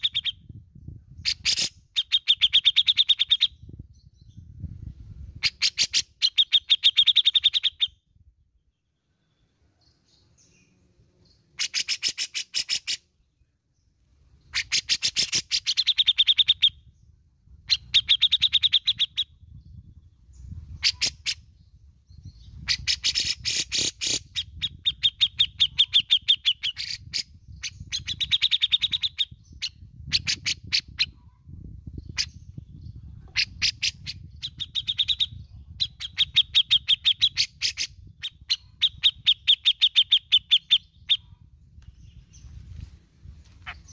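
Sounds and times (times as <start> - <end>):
bird chattering calls: 0.0 - 0.4, 11.6 - 13.0, 14.5 - 16.8, 20.7 - 21.5, 22.6 - 31.2, 43.6 - 43.9.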